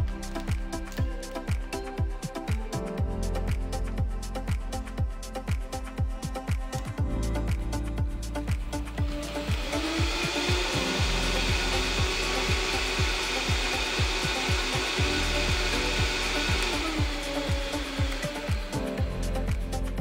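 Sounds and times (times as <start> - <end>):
blender motor whining: 8.8 - 19.9.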